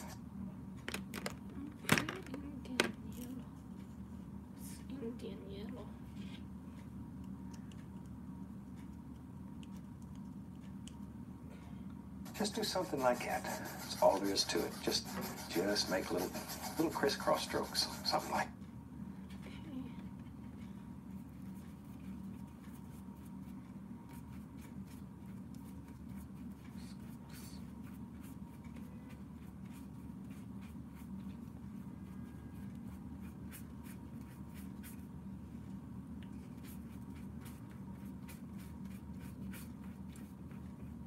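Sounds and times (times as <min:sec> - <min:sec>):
steady low hum: 0:00.0 - 0:41.0
paintbrush brushing on paper: 0:12.3 - 0:18.4, 0:20.5 - 0:35.1, 0:36.2 - 0:41.0.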